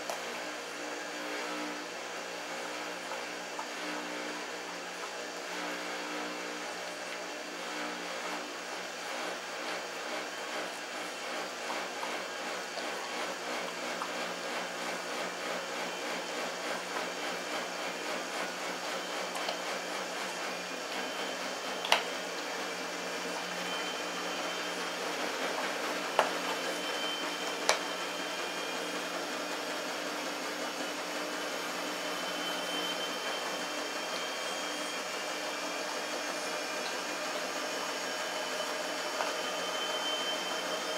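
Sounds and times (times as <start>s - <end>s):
steady mechanical hum: 0.0s - 40.9s.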